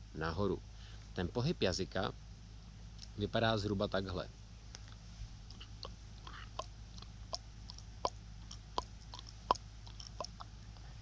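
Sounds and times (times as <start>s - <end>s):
soft wet mouth clicks: 3.0s - 3.2s, 4.7s - 10.9s.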